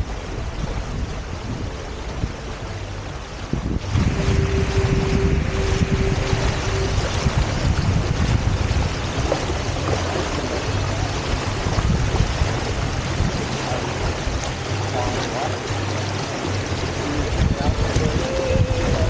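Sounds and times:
water rushing past hulls: 0.0s - 19.0s
wind buffeting microphone: 0.0s - 19.0s.

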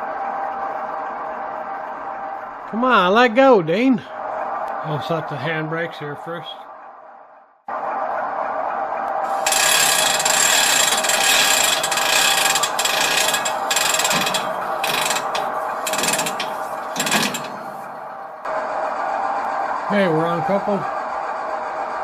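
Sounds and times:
hand brake ratchet clicking: 9.4s - 17.5s.

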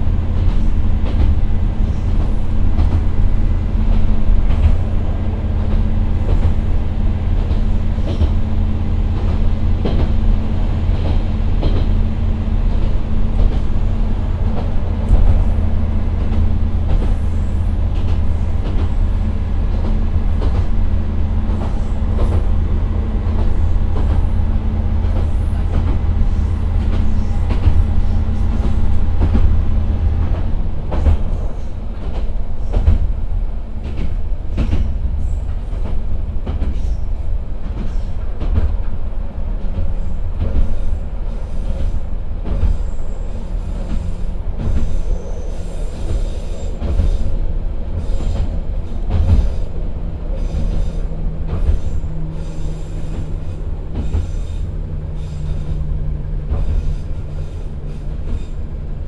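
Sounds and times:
wheels clicking over rail joints: 12.6s - 59.0s
faint wheel squeal: 44.8s - 47.3s.

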